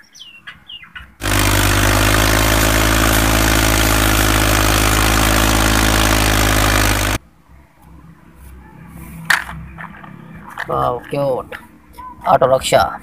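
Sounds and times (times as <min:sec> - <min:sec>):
tractor diesel engine running: 0:01.2 - 0:07.2.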